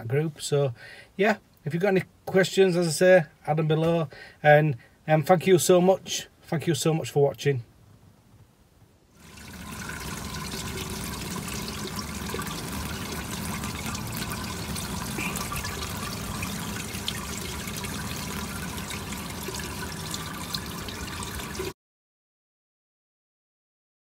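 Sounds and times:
water splashing onto plastic grate: 9.2s - 21.7s.

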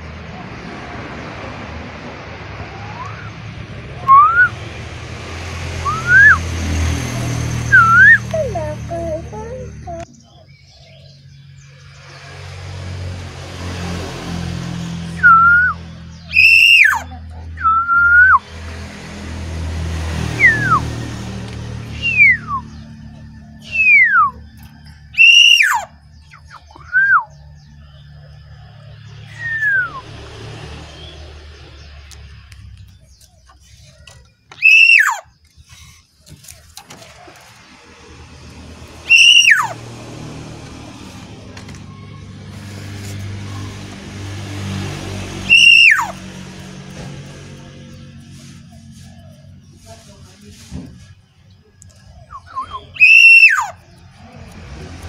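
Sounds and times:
bird whistling: 2.7s - 3.4s, 4.0s - 4.6s, 5.8s - 6.5s, 7.7s - 10.6s, 15.2s - 18.4s, 20.4s - 20.9s, 21.9s - 22.9s, 23.6s - 24.5s, 25.1s - 27.4s, 29.2s - 30.0s, 34.5s - 35.4s, 39.0s - 39.8s, 45.4s - 46.2s, 52.3s - 53.9s
oriole harsh downslurred calls: 16.3s - 17.6s, 25.2s - 26.9s, 34.6s - 35.4s, 39.0s - 40.0s, 52.3s - 53.9s.

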